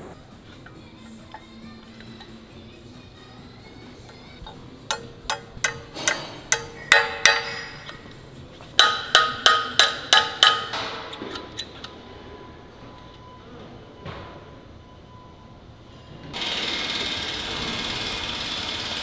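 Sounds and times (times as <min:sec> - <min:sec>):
hammer striking steel pin: 0:04.4 - 0:08.2, 0:08.8 - 0:11.7.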